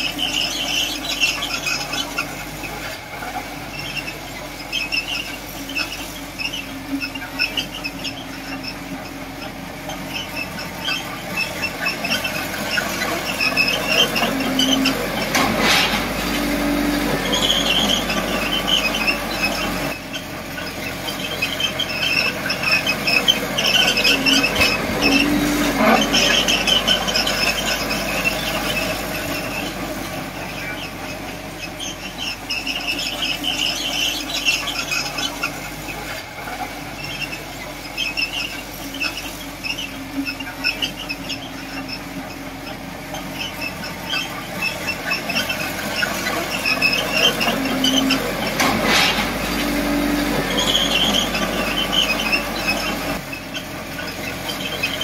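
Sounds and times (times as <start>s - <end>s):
diesel engine running: 0.0s - 55.0s
steel crawler tracks squealing: 0.0s - 55.0s.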